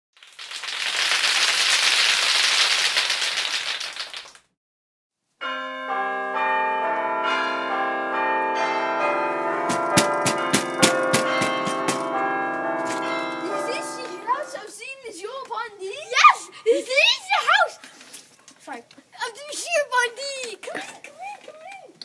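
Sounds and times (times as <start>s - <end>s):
doorbell chime: 5.4s - 14.7s
knocking on door: 9.7s - 12.2s.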